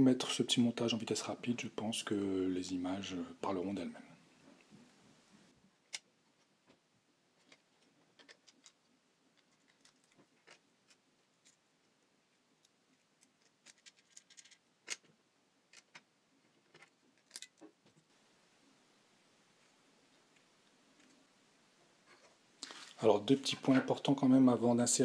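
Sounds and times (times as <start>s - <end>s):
plastic parts clicking: 7.4s - 11.6s, 12.6s - 15.1s, 15.7s - 17.7s.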